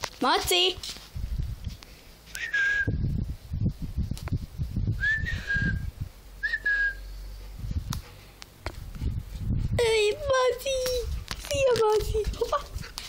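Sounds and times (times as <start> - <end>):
person whistling: 2.4 - 3.0, 5.0 - 7.1
dull low thuds: 7.5 - 9.8.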